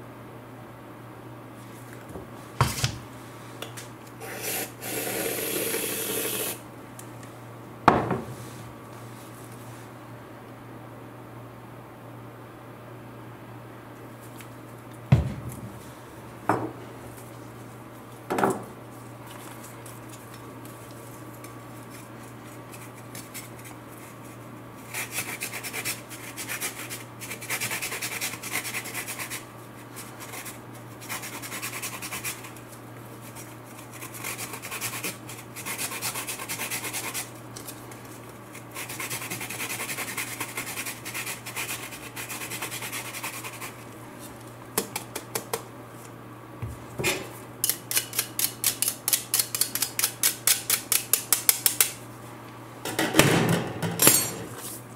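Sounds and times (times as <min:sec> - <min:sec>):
sharp knocks: 0:15.1 - 0:15.7.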